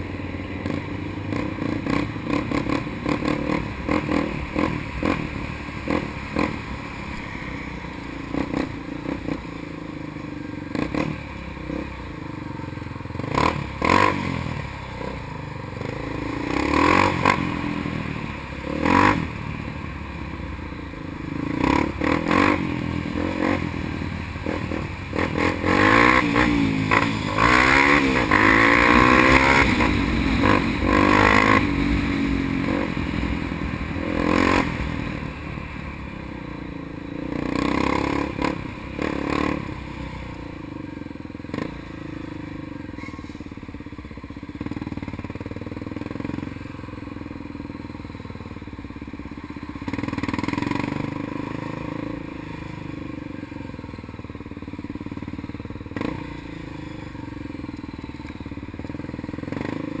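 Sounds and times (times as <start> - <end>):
motorcycle engine revving: 0.0 - 60.0
road traffic noise: 0.0 - 60.0.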